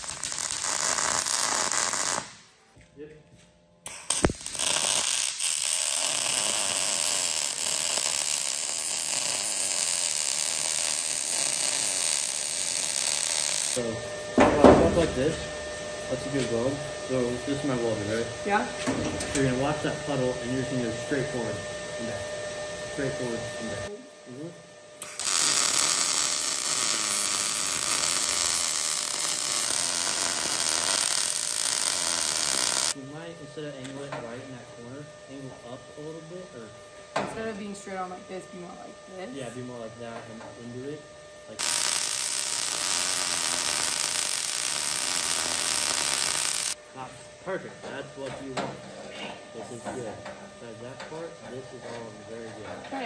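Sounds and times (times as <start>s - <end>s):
electric arc welding: 0.0s - 2.5s, 3.8s - 13.9s, 25.0s - 33.8s, 40.7s - 46.8s.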